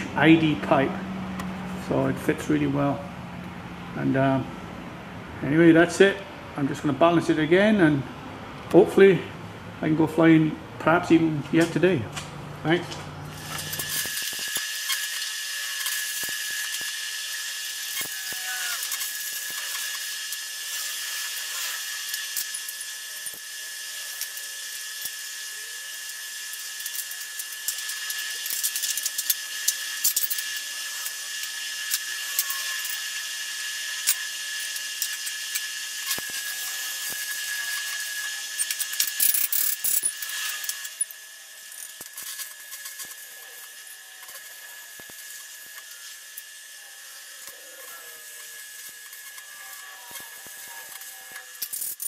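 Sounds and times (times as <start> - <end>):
welding arc crackling and sizzling: 11.6 - 52.0.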